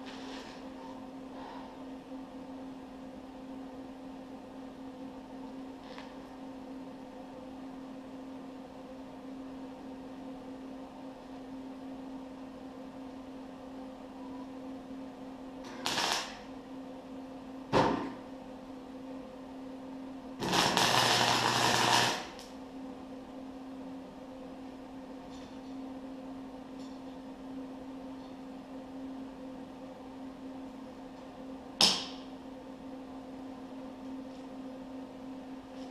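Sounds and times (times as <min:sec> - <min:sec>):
arc welding crackle and sizzle: 0:00.0 - 0:00.8, 0:15.6 - 0:16.6, 0:20.4 - 0:22.6, 0:31.8 - 0:32.3
steady hum: 0:00.0 - 0:35.9.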